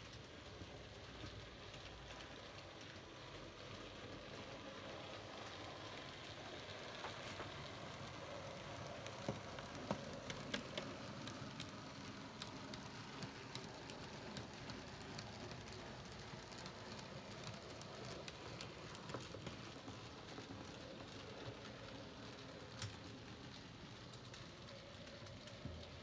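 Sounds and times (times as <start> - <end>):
wheels clicking over rail joints: 5.0 - 26.0.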